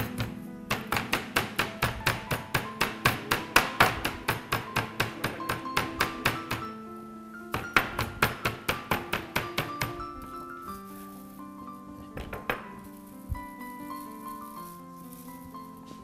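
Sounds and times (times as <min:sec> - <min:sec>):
rolling pin pounding chicken: 0:00.0 - 0:06.6, 0:07.6 - 0:10.0
background music: 0:00.0 - 0:16.0.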